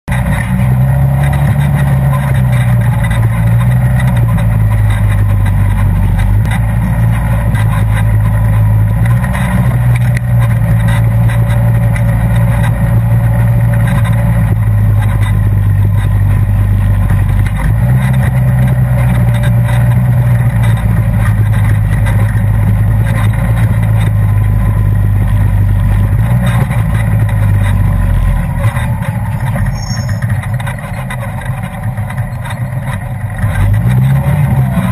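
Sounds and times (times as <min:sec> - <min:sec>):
vehicle engine running: 0:00.0 - 0:34.9.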